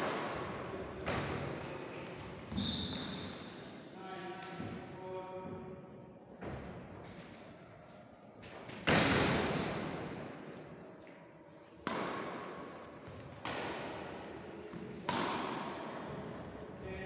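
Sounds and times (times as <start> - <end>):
shoe squeaks: 1.0 - 3.4, 8.2 - 8.7, 12.8 - 13.5
rackets hitting shuttlecock: 11.8 - 15.9.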